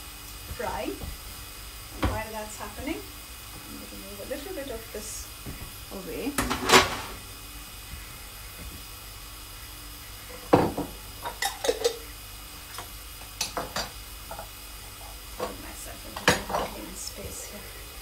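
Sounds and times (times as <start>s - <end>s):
fish sizzling in a pan: 0.0s - 18.0s
jars and kitchenware clinking: 11.2s - 12.0s.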